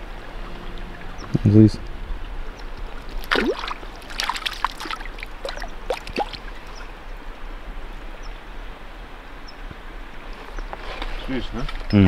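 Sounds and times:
water splashing: 0:00.0 - 0:07.9
water lapping: 0:00.0 - 0:08.9
water dripping: 0:00.1 - 0:06.9.

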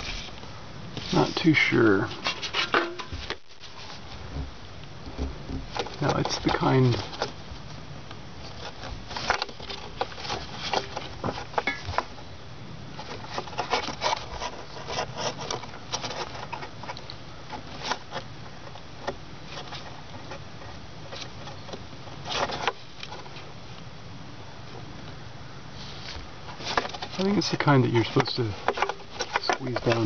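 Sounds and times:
handling noise: 0:00.0 - 0:23.9, 0:25.8 - 0:30.0.

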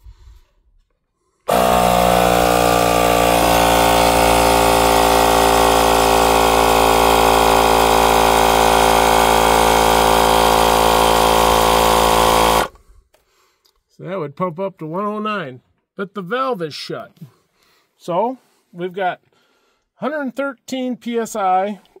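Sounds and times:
air compressor running: 0:01.5 - 0:12.8.

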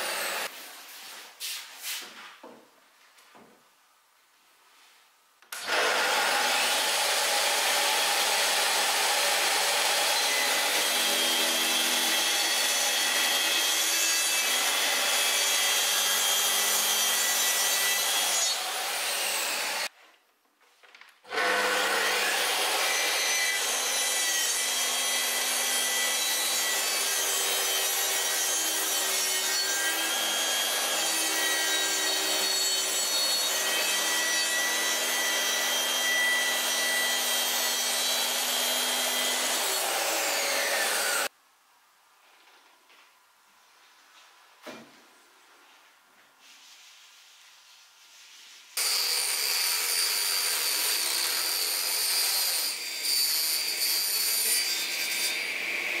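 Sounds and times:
circular saw cutting wood: 0:00.0 - 0:00.5, 0:05.5 - 0:19.9, 0:21.3 - 0:41.3, 0:48.8 - 0:56.0.

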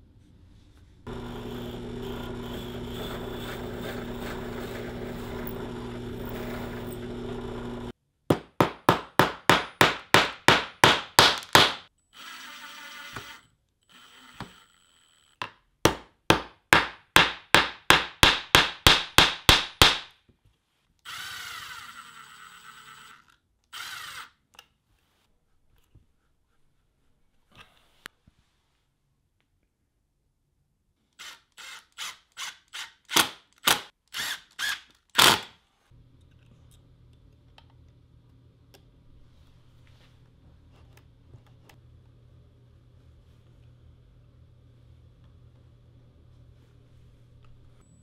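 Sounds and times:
electric drill motor running: 0:01.1 - 0:07.9, 0:12.2 - 0:15.4, 0:21.1 - 0:24.4, 0:31.2 - 0:32.9
screwdriver driving screw into wood: 0:31.2 - 0:35.5.

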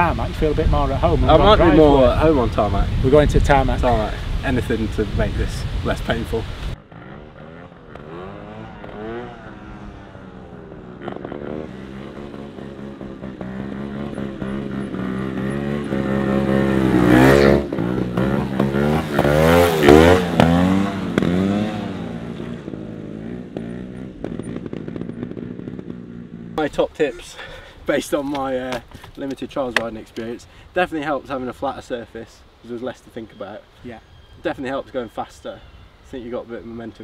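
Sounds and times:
motorcycle engines revving: 0:00.0 - 0:26.8.

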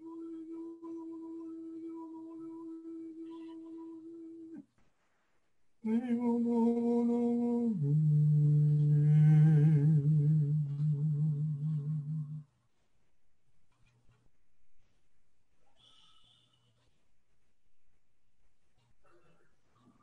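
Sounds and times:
man humming held notes: 0:00.0 - 0:04.6, 0:05.8 - 0:12.4.

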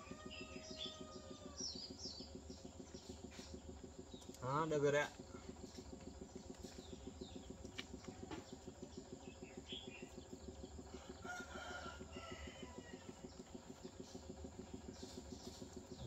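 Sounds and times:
faint rooster crowing: 0:00.0 - 0:01.8, 0:10.9 - 0:13.3
pulsing low hum: 0:00.0 - 0:16.0.

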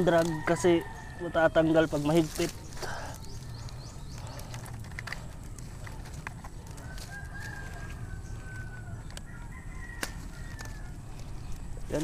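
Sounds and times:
rooster crowing: 0:00.1 - 0:01.5, 0:06.7 - 0:11.1
clicks and rustling: 0:02.2 - 0:08.0.

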